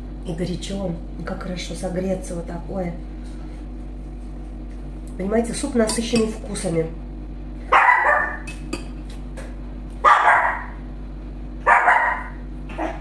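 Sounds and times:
dog barking: 7.7s - 8.4s, 10.0s - 10.8s, 11.6s - 13.0s.

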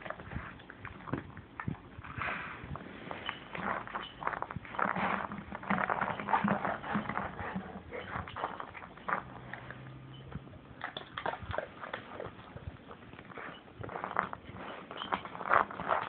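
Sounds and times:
dog mouthing a rubber ball: 4.7s - 9.8s.

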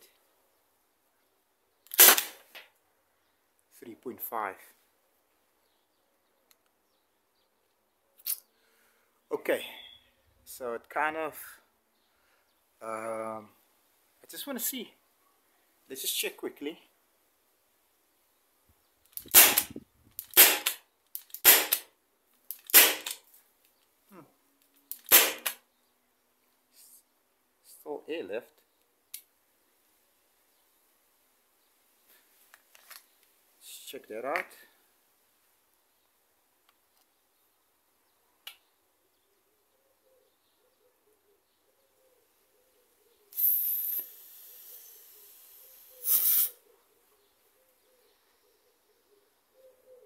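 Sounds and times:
gas launcher firing sharp pops: 1.9s - 2.6s, 19.2s - 21.8s, 22.6s - 23.2s, 25.0s - 25.6s
sharp click: 19.1s - 21.9s, 24.9s - 25.6s
gas hissing out: 43.4s - 46.6s.

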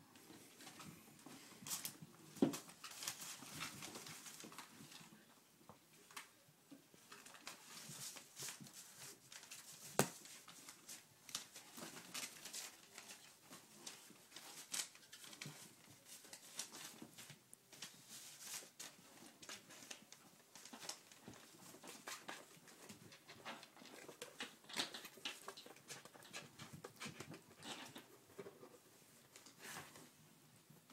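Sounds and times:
kittens rustling and scratching: 0.1s - 30.9s.

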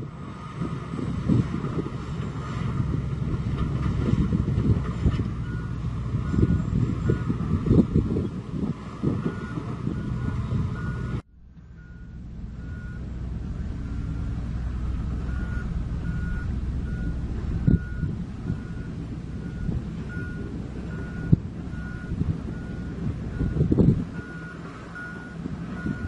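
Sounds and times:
bulldozer diesel engine running: 0.0s - 26.0s
reversing alarm beeping: 5.4s - 7.5s, 9.2s - 13.1s, 15.2s - 26.0s.

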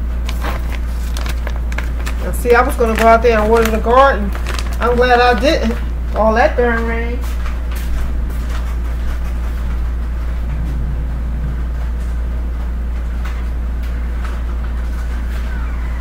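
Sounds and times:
low rumble: 7.8s - 13.8s.

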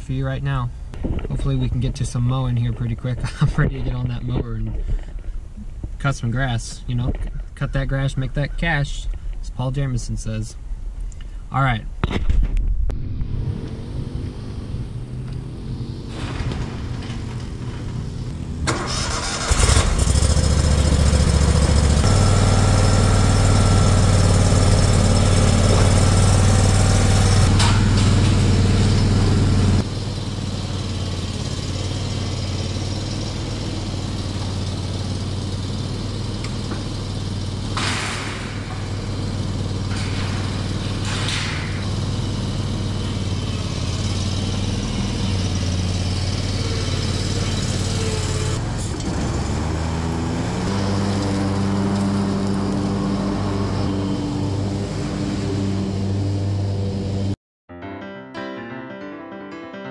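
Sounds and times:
mower engine running: 13.2s - 57.4s.

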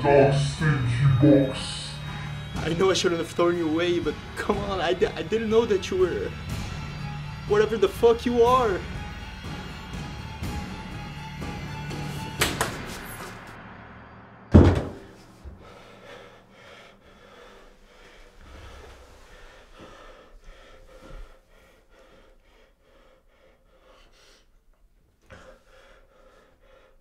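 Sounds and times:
door slamming: 14.5s - 15.6s
panicked gasping breaths: 15.5s - 27.0s.

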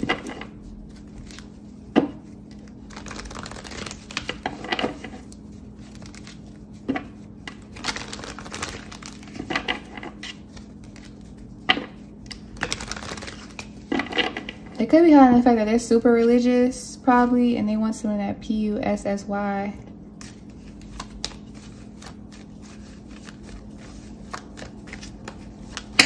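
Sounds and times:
cards shuffling: 0.0s - 14.5s, 20.2s - 26.0s
steady low hum: 0.0s - 26.0s.

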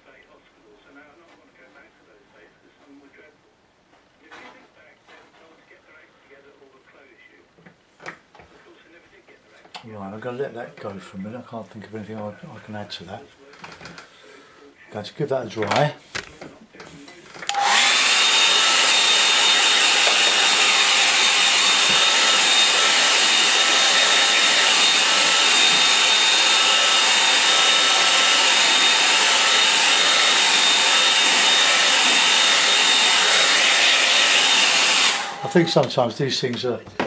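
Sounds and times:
hair dryer blowing with whine: 17.5s - 36.0s.

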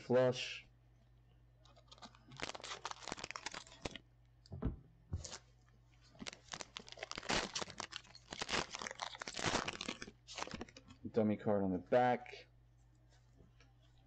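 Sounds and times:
foil wrapper crinkling: 1.7s - 4.0s, 6.0s - 10.9s.

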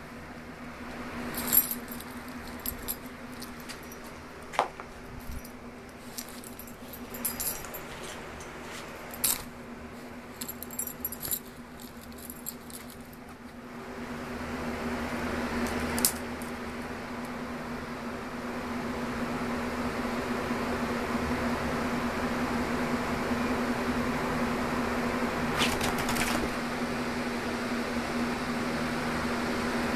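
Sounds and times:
low steady hum: 0.0s - 21.0s
light metallic jingling: 1.3s - 4.6s, 5.2s - 13.2s.

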